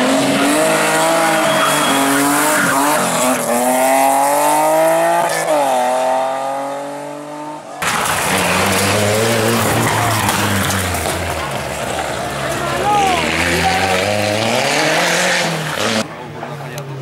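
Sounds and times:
rally car engine accelerating: 0.0 - 16.2
deeper rally car engine: 0.0 - 17.0.

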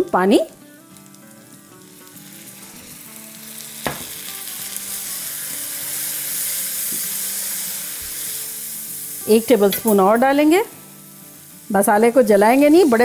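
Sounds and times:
masala sizzling in hot oil: 0.0 - 13.0
sharp tap: 3.9 - 4.1.

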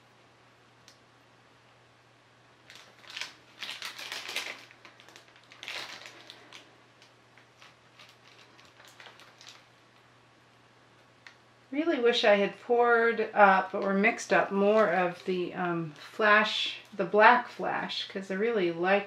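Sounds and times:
crackling handling noise: 2.6 - 10.2, 13.4 - 17.7.

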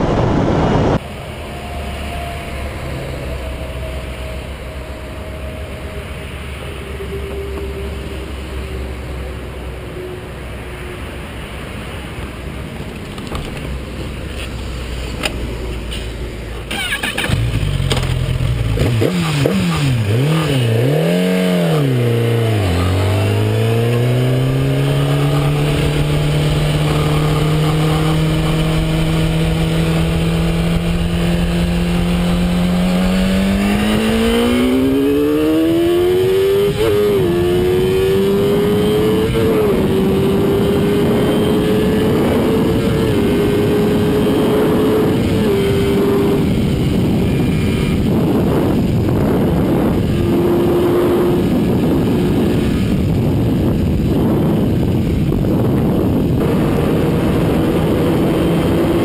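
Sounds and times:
wind noise: 0.0 - 59.0
motorcycle engine revving: 16.6 - 59.0.

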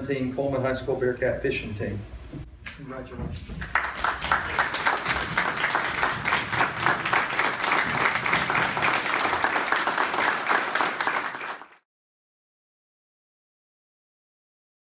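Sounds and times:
people applauding: 3.6 - 11.8.

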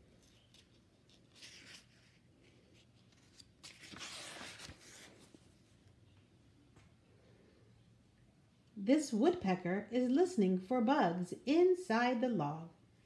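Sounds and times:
book pages rustling: 0.0 - 5.8.

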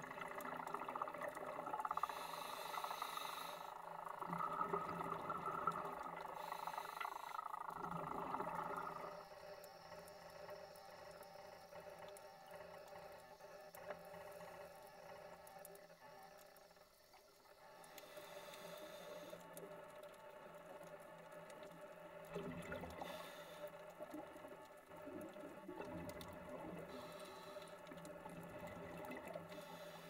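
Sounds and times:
underwater hiss: 0.1 - 30.0
regulator hiss: 1.7 - 4.3, 5.3 - 19.8, 26.6 - 28.0, 29.5 - 30.0.

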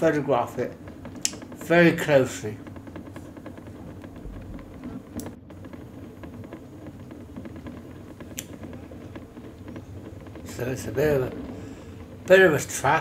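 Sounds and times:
low rumble: 0.0 - 13.0
sharp clicks: 0.8 - 1.7.

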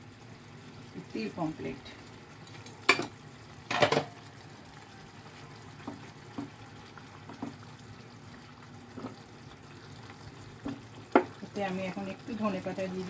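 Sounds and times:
gravy bubbling in a pan: 0.0 - 13.0
plastic spatula tapping a pan: 5.8 - 6.6.

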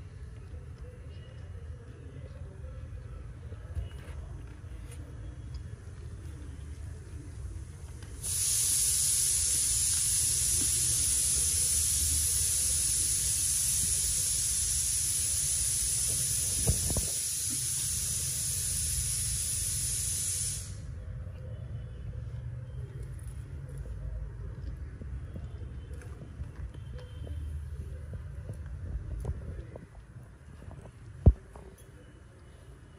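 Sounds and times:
steady high hiss: 8.1 - 21.0.

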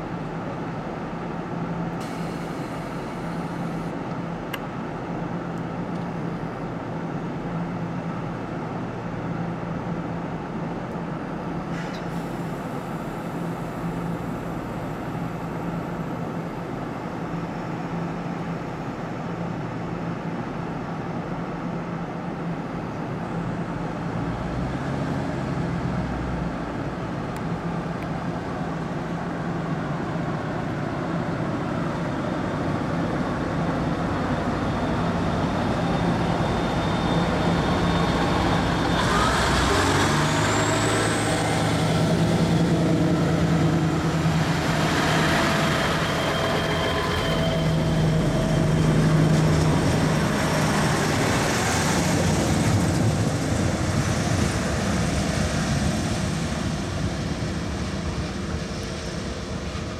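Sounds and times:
diesel train engines running: 0.0 - 59.9
high rising whine: 35.7 - 53.8.

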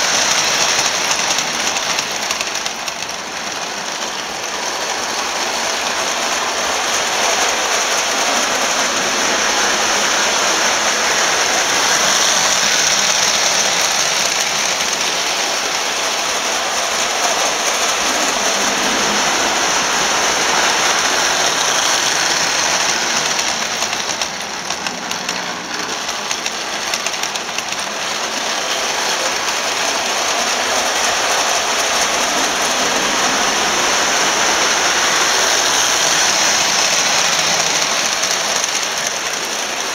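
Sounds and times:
toy trains rattling whir: 0.0 - 39.9.

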